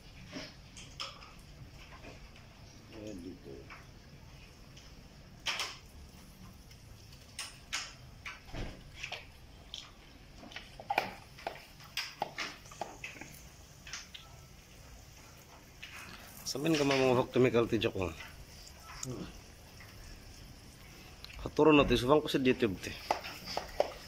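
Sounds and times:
faint steady hiss: 0.0s - 24.0s
pressure sprayer squirting water: 22.7s - 24.0s.

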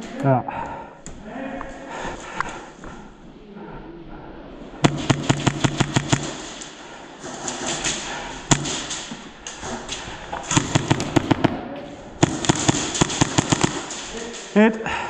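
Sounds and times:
airsoft gun shots: 4.8s - 6.6s, 8.5s - 9.6s, 10.4s - 14.1s.

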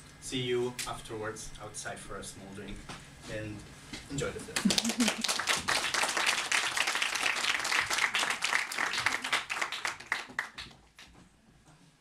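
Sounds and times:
audience applauding: 4.6s - 11.1s.

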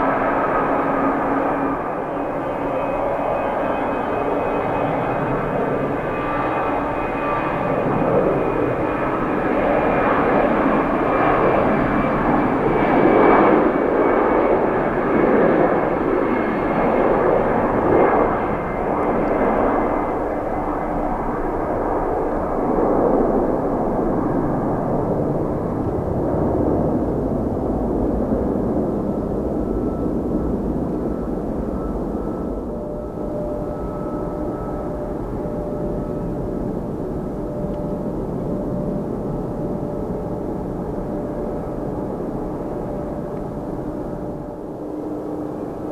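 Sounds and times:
jet airliner taking off: 0.0s - 45.9s.

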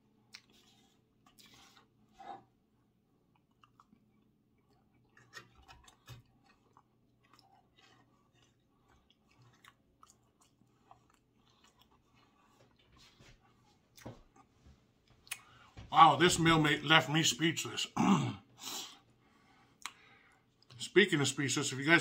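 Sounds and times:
chewing with wet mouth clicks: 0.2s - 1.9s, 3.2s - 13.0s, 15.2s - 15.6s, 19.8s - 20.0s.

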